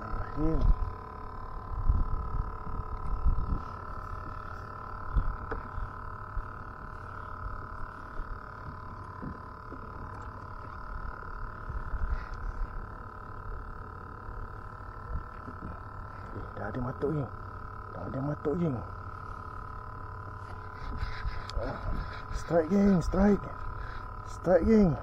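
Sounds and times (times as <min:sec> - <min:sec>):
faint steady whine: 0:00.0 - 0:25.0
wind rumbling on microphone: 0:00.2 - 0:06.6.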